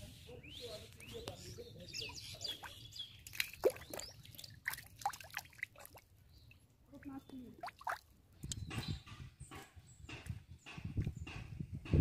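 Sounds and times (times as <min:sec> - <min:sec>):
muddy water dripping and splashing: 0:02.0 - 0:08.5.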